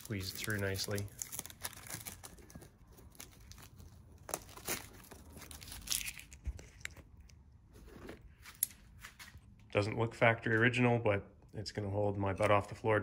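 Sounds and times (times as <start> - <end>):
plastic film crinkling and tearing: 0.0 - 7.1.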